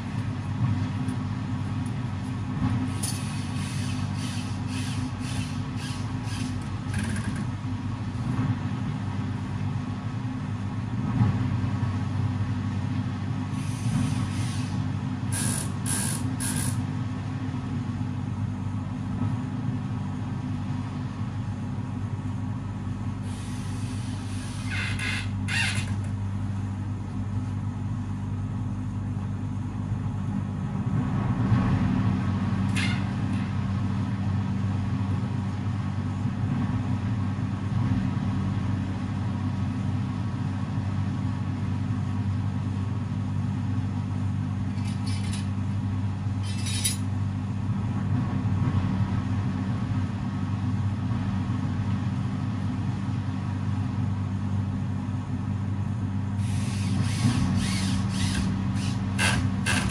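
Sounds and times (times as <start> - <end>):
low machine hum: 0.0 - 59.9.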